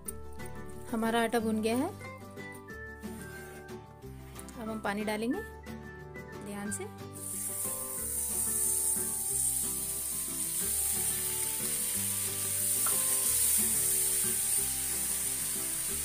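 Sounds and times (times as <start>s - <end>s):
soft background music: 0.0s - 16.0s
water sizzling in hot pan: 7.2s - 16.0s.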